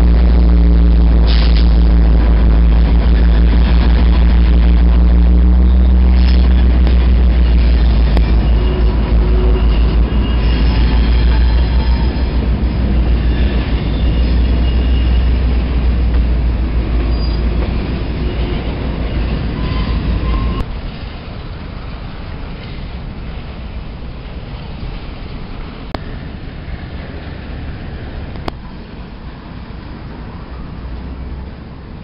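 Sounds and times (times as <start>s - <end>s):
freight train wheels rumbling: 0.0s - 32.0s
high-pitched wheel squeals: 7.6s - 15.7s, 17.0s - 20.7s.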